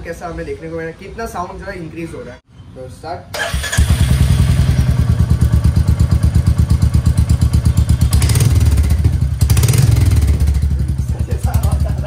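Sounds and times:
motorcycle engine idling: 0:03.7 - 0:12.0.

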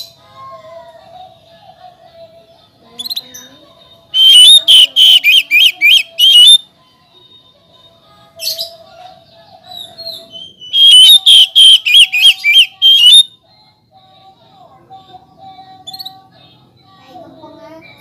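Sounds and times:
bird singing swooping whistles: 0:04.2 - 0:06.6, 0:10.1 - 0:13.3
soft bird call: 0:04.2 - 0:06.6, 0:10.0 - 0:13.3.

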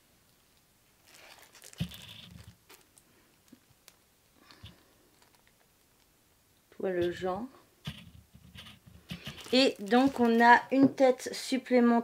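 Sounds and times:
paper rustling and crinkling: 0:01.0 - 0:06.1, 0:07.9 - 0:10.7.

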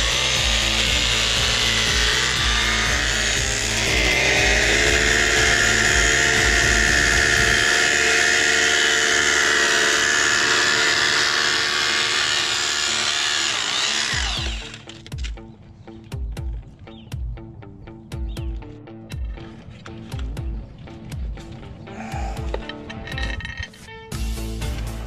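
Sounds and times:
rotary hammer drilling concrete: 0:00.0 - 0:15.3.

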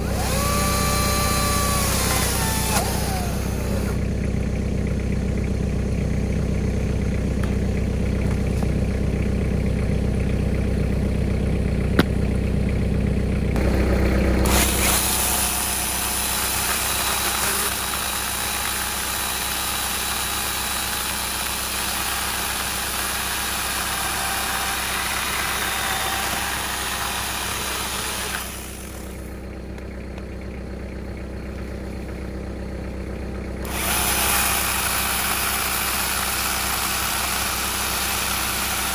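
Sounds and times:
chainsaw cutting through log: 0:00.0 - 0:04.0, 0:14.4 - 0:29.3, 0:33.6 - 0:38.9
engine idling: 0:00.0 - 0:38.9.

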